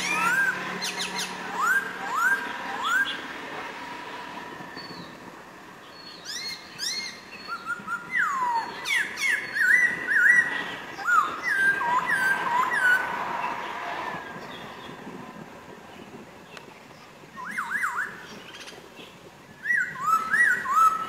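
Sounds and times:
bird singing whistled notes: 0.0s - 3.3s, 4.8s - 5.2s, 5.8s - 13.2s, 17.3s - 21.0s.

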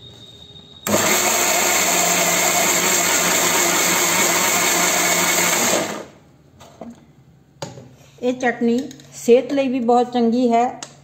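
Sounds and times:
mixer grinder running: 0.9s - 6.2s.

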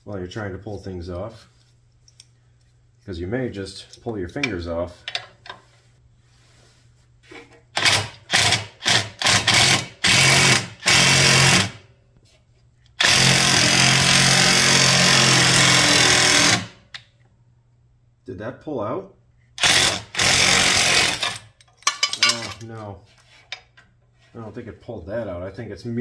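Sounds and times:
impact wrench bursts: 7.8s - 11.8s, 13.0s - 16.9s, 19.6s - 22.5s.

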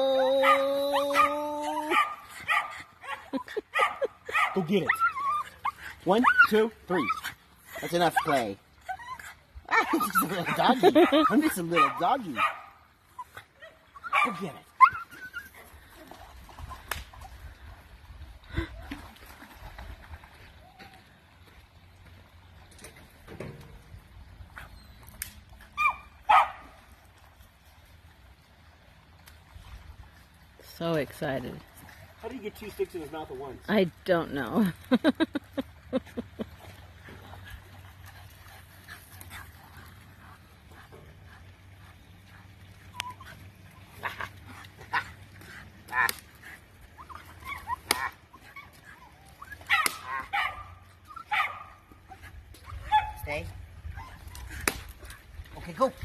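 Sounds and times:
dog barking: 0.4s - 1.3s, 1.9s - 4.7s, 10.9s - 12.8s, 14.1s - 14.4s, 25.8s - 26.6s, 49.7s - 51.8s
dog yipping and whining: 3.8s - 7.3s, 13.2s - 15.6s, 47.0s - 51.5s.

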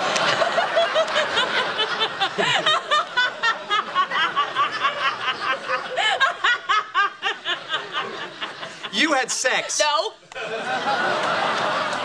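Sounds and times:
woman laughing hard: 0.3s - 8.9s.

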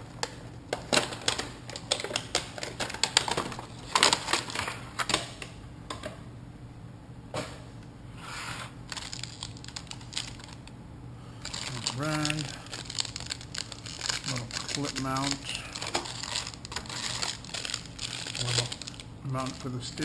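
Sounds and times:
plastic crinkling: 8.9s - 10.7s, 11.4s - 19.7s.

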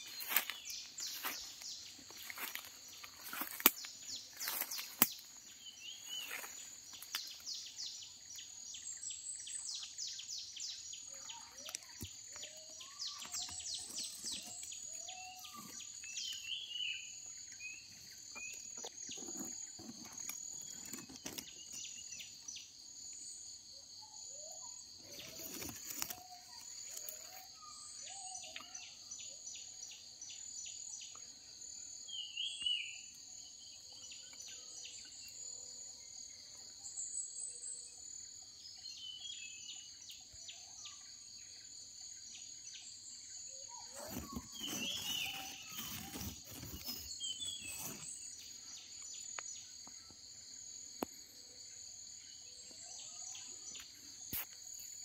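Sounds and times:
birds chirping and whistling: 0.0s - 8.0s, 8.8s - 22.3s, 43.5s - 49.6s
high-pitched insect chorus: 0.0s - 55.0s.

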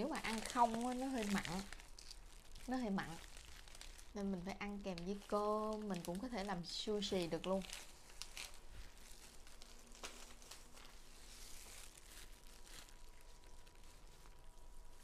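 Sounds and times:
plastic gloves crinkling: 0.0s - 15.0s.

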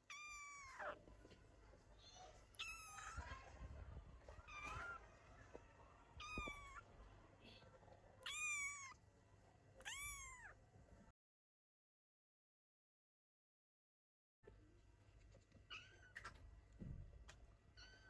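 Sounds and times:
kittens mewing: 0.0s - 1.0s, 2.5s - 3.3s, 6.2s - 6.8s, 8.2s - 9.0s, 9.9s - 10.6s.

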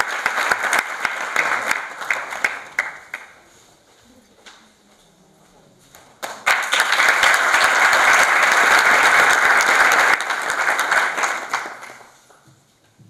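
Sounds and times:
audience applauding: 0.0s - 3.4s, 6.2s - 12.2s.

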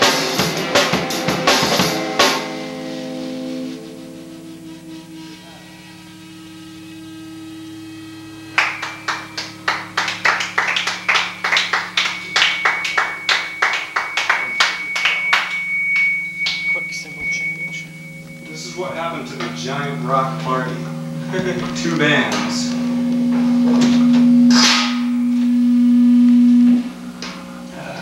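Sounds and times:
electric hum: 0.0s - 28.0s
high ringing tone: 0.0s - 28.0s
people clapping: 8.5s - 17.8s.

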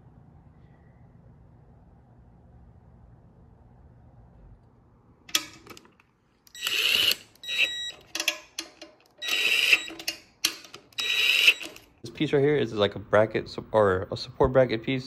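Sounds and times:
faint low hum: 0.0s - 6.7s
ratchet clicking with high whine: 9.1s - 11.9s.

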